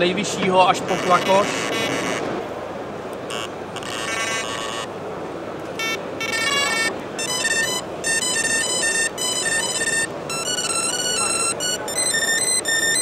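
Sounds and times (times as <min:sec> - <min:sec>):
bite alarm electronic beeps: 0:05.8 - 0:13.0.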